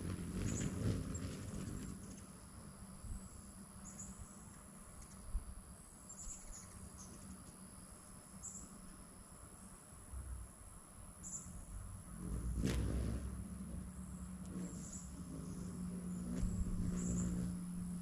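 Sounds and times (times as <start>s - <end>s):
low wind rumble: 0.0s - 4.4s, 10.0s - 18.0s
insect drone: 0.0s - 18.0s.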